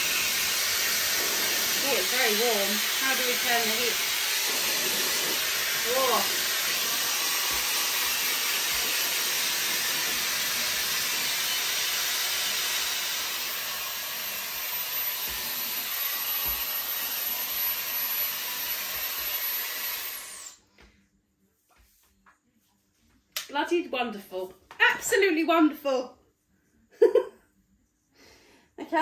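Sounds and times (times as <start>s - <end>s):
motor spinning down: 0.0s - 14.0s
hair dryer running: 0.0s - 20.6s.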